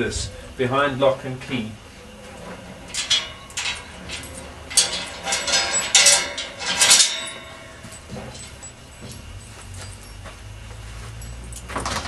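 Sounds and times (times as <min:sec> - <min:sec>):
padlock and chain rattling: 0:02.0 - 0:10.3, 0:11.1 - 0:12.0.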